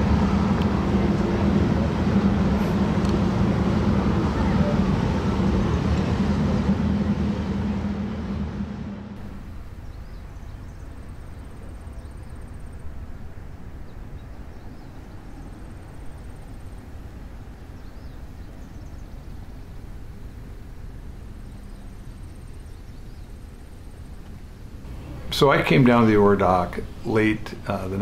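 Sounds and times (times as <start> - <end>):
noisy rush: 0.0 - 18.4, 24.8 - 28.0
low mechanical hum: 0.0 - 28.0.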